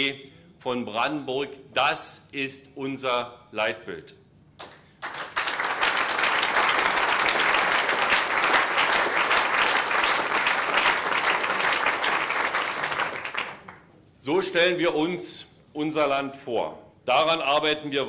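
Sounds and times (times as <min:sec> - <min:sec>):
audience applauding: 0:04.6 - 0:13.9.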